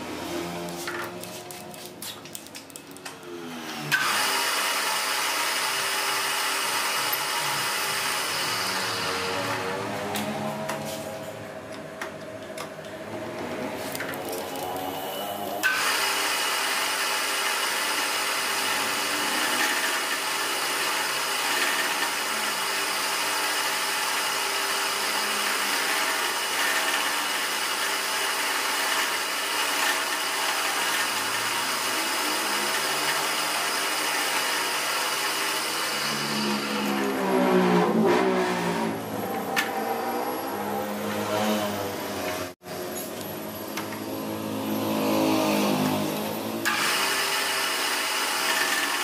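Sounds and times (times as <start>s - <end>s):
drill press machining metal: 3.8s - 9.7s, 14.9s - 37.2s, 46.6s - 49.0s.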